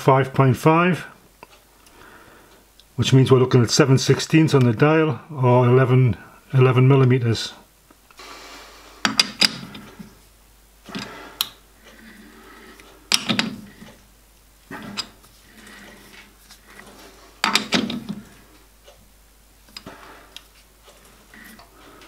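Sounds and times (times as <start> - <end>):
metal clicks and clunks of lathe chuck: 16.7 - 18.2.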